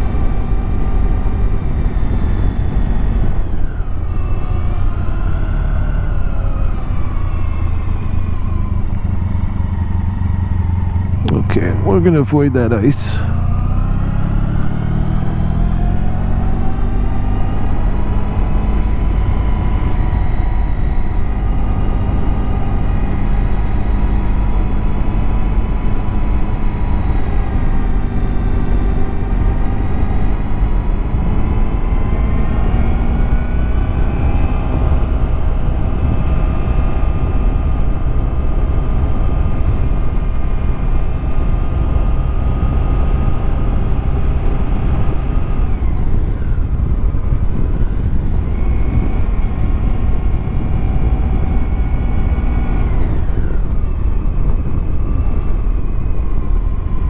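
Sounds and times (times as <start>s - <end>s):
wind rush: 0.0s - 5.5s, 24.9s - 57.0s.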